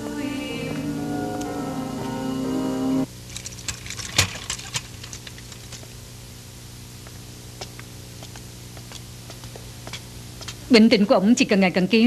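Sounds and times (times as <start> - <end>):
low hum: 0.0 - 3.1
footsteps on tiled floor: 7.0 - 10.8.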